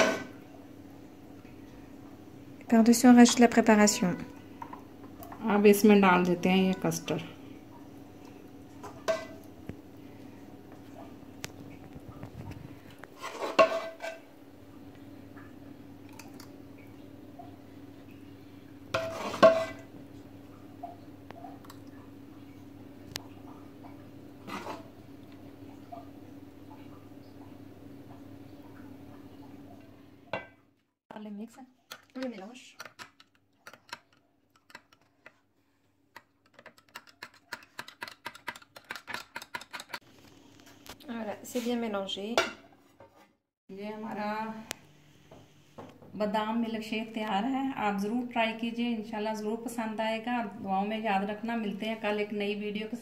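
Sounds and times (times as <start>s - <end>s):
faint steady hum: 0.0s - 36.3s.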